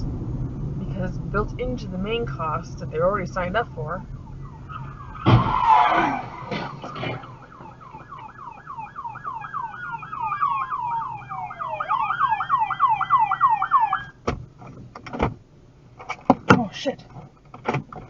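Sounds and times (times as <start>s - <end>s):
police siren wailing: 3.3s - 14.2s
police siren yelping: 3.6s - 14.2s.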